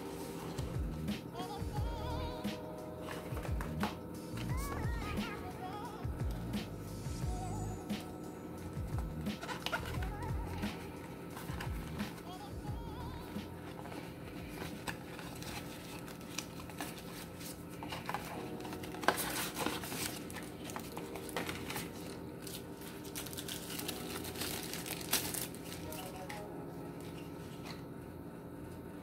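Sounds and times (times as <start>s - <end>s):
cardboard packaging rustling: 3.0s - 4.9s, 8.7s - 12.3s, 13.2s - 27.8s.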